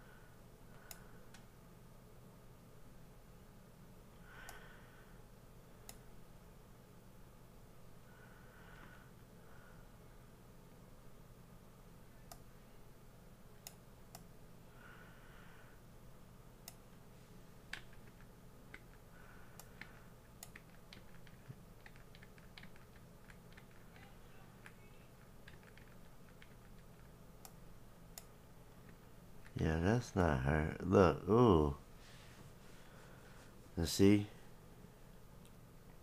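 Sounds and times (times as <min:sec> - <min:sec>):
steady low hum: 0:00.0 - 0:36.0
faint keyboard clicks: 0:19.6 - 0:27.6.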